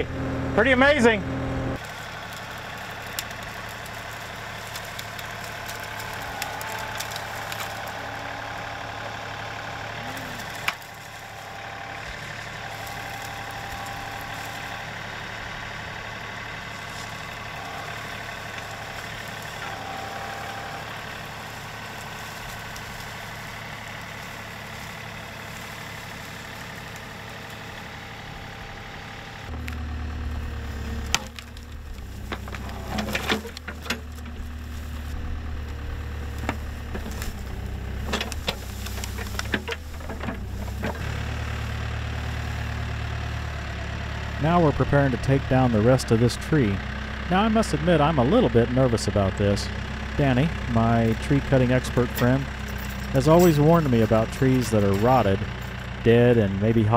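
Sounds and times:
heavy backhoe diesel engine: 0.0s - 56.9s
tractor diesel engine under load: 0.0s - 56.9s
wood cracking and snapping: 1.8s - 9.2s, 9.8s - 28.3s, 29.5s - 43.7s.

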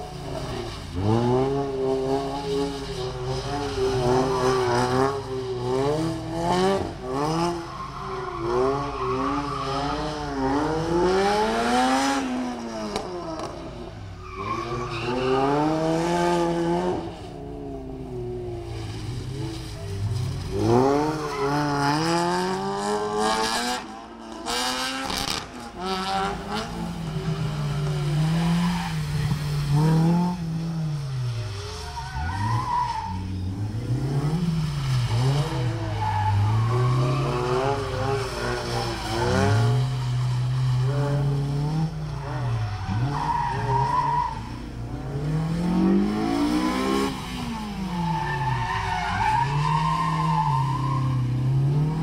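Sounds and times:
sports car engines revving: 0.0s - 52.0s
tyre squeals: 2.4s - 6.5s, 7.1s - 10.9s, 14.1s - 16.0s, 18.7s - 22.4s, 31.6s - 44.7s, 46.2s - 51.6s.

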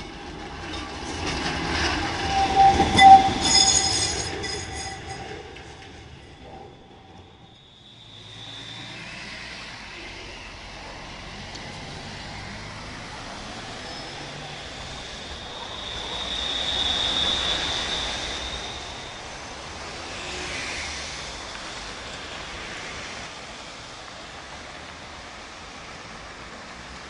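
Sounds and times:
high steel wheel squeal: 0.0s - 11.0s, 12.7s - 21.9s
tram wheels rumbling on rails: 0.0s - 27.0s.

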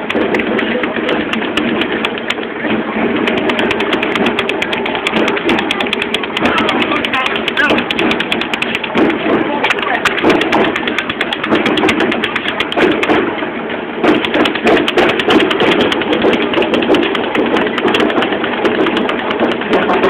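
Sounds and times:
camera rubbing noise: 0.0s - 13.2s
runners' footfalls on street: 0.0s - 13.3s, 14.0s - 20.0s.

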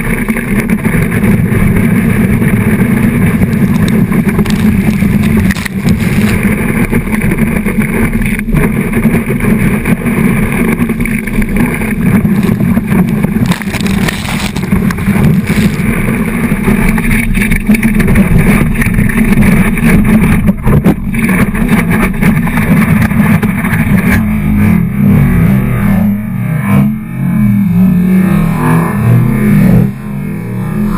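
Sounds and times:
low rumble: 0.0s - 30.9s
water rushing and spraying: 0.5s - 21.4s.

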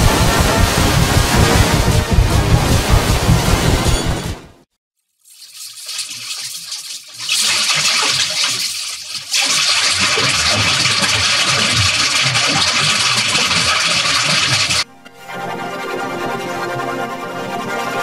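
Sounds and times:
distorted chainsaw buzz: 0.0s - 3.8s
steady tones: 0.0s - 4.6s.

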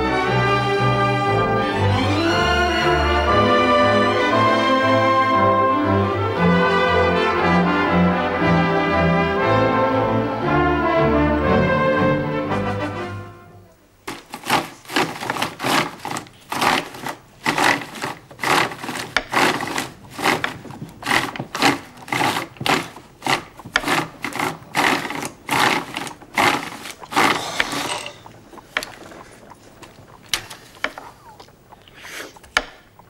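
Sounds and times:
knife slicing cucumber on board: 14.1s - 27.4s
hand-cranked ice cream freezer: 14.1s - 29.2s.

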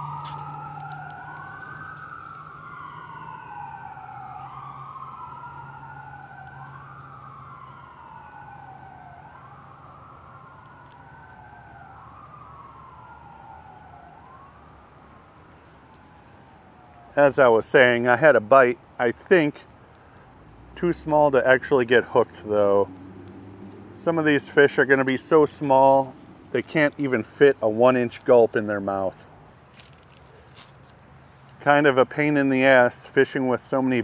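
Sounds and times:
emergency sirens wailing: 0.0s - 17.2s, 20.8s - 28.0s.

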